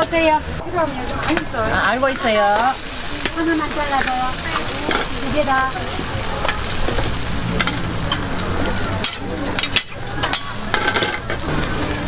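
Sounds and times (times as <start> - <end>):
food sizzling on a griddle: 0.0 - 12.0.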